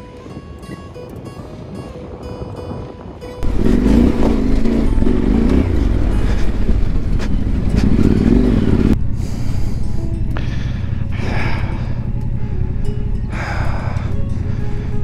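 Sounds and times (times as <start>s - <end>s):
motorcycle engine revving: 3.4s - 15.0s.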